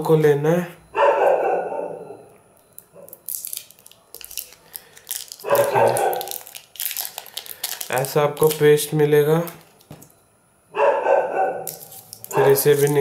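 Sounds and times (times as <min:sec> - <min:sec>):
plastic wrapper crinkling: 0:02.7 - 0:10.1, 0:11.6 - 0:13.0.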